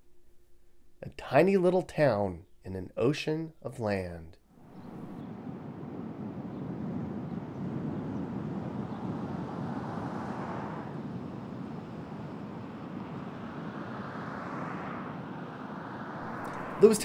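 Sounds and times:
car road and engine noise: 8.4s - 17.0s.

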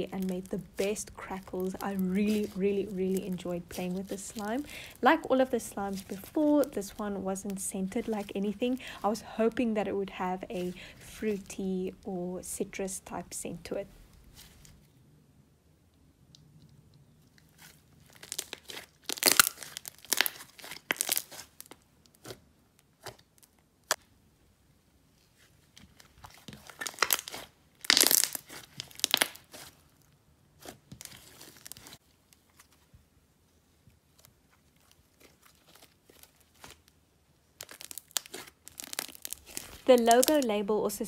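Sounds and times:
slime crackling and popping: 0.0s - 9.2s, 17.4s - 24.1s, 25.6s - 32.8s, 34.0s - 40.6s.

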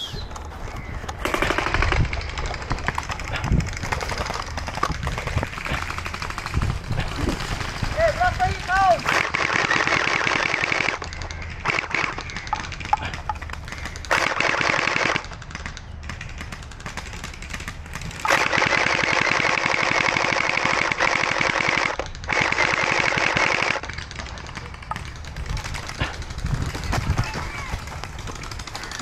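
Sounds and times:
gel blaster full-auto bursts: 5.2s - 13.2s, 13.8s - 15.3s, 16.1s - 26.6s.

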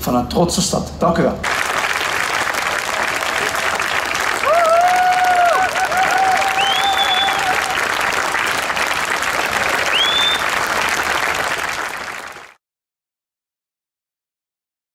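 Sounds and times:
crowd applauding and cheering: 1.4s - 12.6s
short rising whistles: 6.1s - 7.7s, 9.9s - 10.6s.

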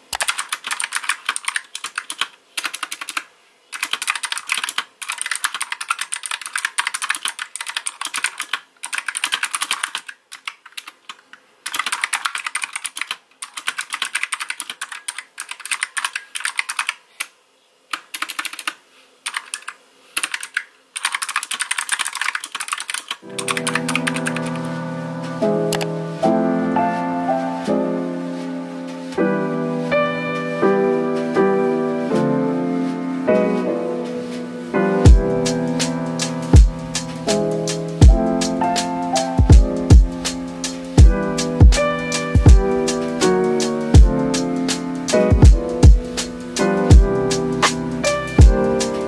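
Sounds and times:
mechanical keyboard typing: 0.1s - 17.3s, 17.9s - 24.8s, 25.7s - 25.9s, 35.0s - 49.0s.

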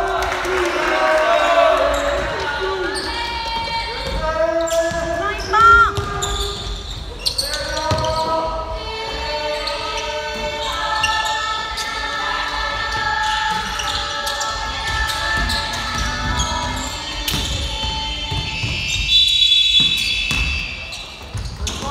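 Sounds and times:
people calling out: 0.0s - 19.3s
sneakers squeaking: 1.3s - 21.9s
basketball bouncing on wooden floor: 4.8s - 7.1s
referee whistle blast: 18.4s - 21.0s.

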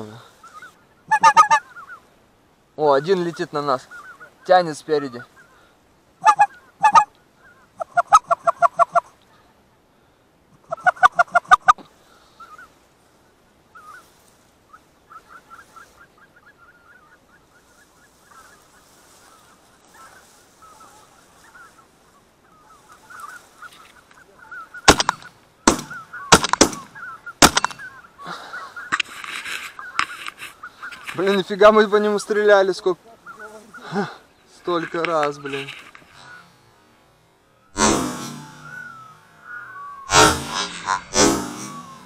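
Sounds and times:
geese honking: 0.4s - 2.1s, 2.8s - 9.1s, 10.6s - 12.8s, 13.8s - 37.0s, 37.6s - 42.0s
shotgun shots: 24.9s - 27.9s, 40.1s - 42.0s.

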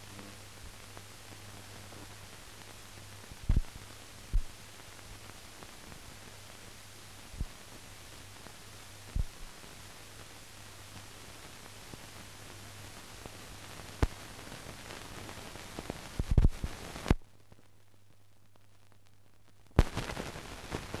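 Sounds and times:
film hiss: 0.0s - 21.0s
pops and crackles: 0.2s - 6.0s, 8.5s - 9.6s, 13.0s - 17.7s, 18.4s - 21.0s.

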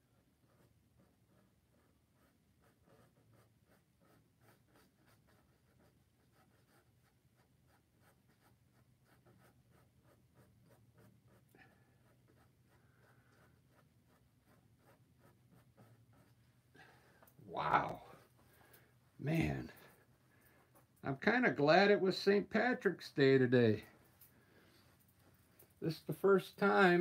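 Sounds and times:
paintbrush scratching on canvas: 0.0s - 17.1s.

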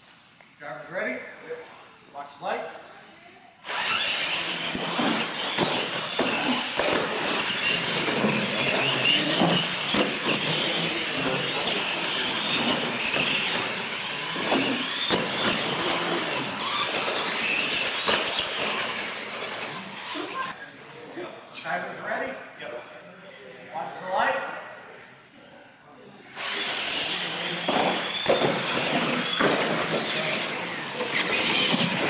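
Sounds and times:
toy truck electric motors whining: 3.6s - 20.6s, 26.3s - 32.0s.

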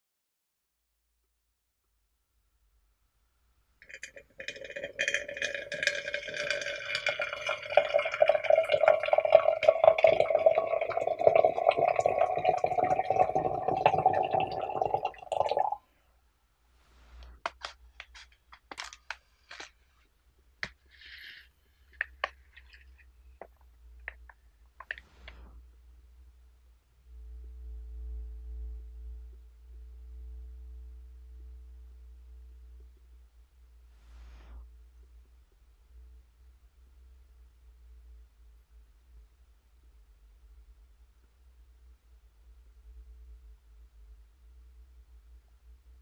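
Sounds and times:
water pouring into vessel: 3.8s - 15.8s.

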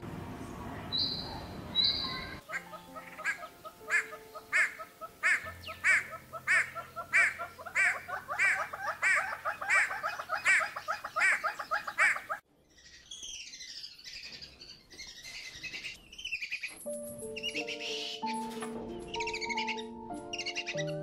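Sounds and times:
loud bird call: 0.9s - 12.4s
bird chattering: 0.9s - 14.3s, 19.2s - 21.0s
high falling bird chirps: 0.9s - 21.0s.

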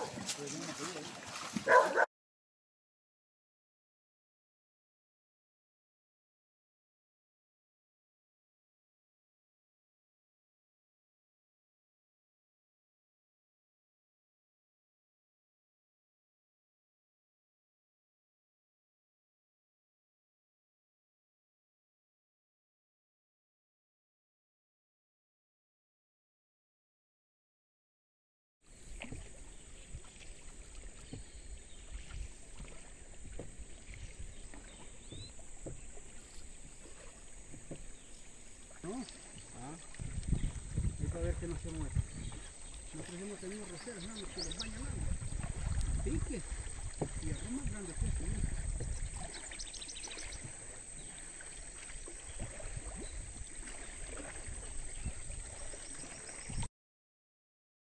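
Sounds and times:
water sloshing around boat: 0.0s - 2.1s, 28.7s - 56.7s
wind thumping on microphone: 40.0s - 42.5s, 44.4s - 49.4s.

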